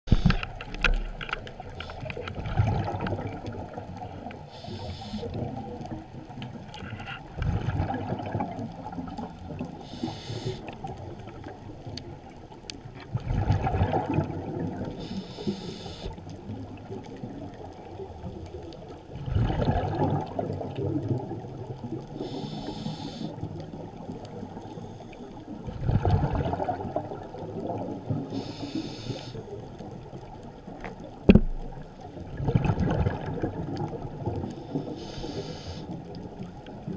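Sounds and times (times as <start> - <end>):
exhaled bubbles rumbling: 0.1 - 28.8, 29.4 - 36.9
faint crackle: 0.1 - 36.9
regulator inhale hiss: 1.8 - 2.2, 4.4 - 5.4, 9.8 - 10.8, 14.9 - 16.2, 22.2 - 23.4, 28.2 - 29.5, 34.4 - 36.1.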